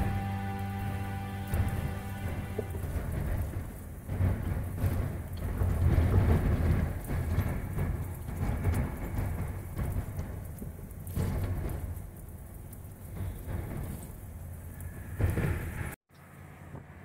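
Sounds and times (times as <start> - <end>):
background music: 0.0 - 3.5
low thunder rumbling: 0.0 - 16.0
steady rain: 0.0 - 16.0.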